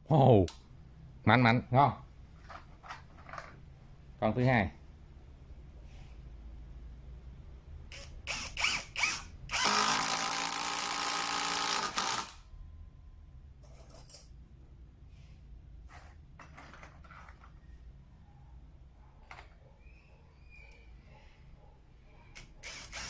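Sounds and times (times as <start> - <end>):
impact driver hammering screw: 7.9 - 12.4, 22.4 - 23.0.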